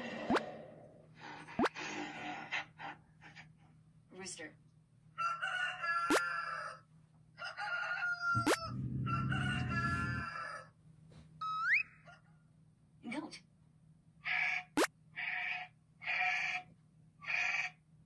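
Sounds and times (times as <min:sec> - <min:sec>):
rooster crowing through a speaker: 0:05.2 - 0:06.8, 0:07.4 - 0:10.7.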